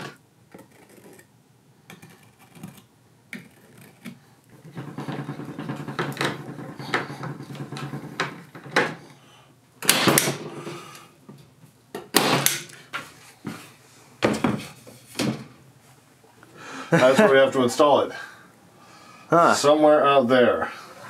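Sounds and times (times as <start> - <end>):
wooden knocks and clacks: 3.4 - 9.0.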